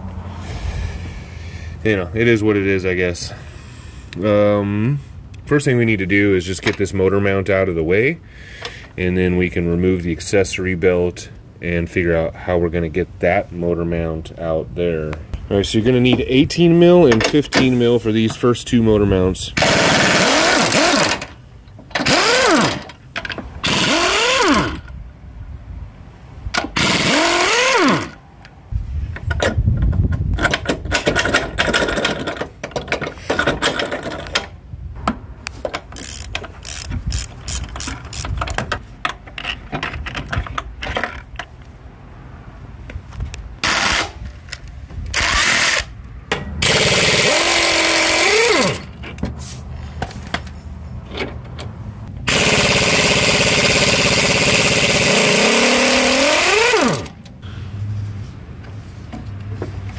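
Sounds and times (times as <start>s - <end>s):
impact wrench bursts: 19.6s - 23.0s, 23.6s - 24.9s, 26.6s - 28.2s, 35.7s - 38.8s, 43.6s - 44.2s, 45.1s - 46.0s, 46.6s - 49.0s, 52.2s - 57.3s.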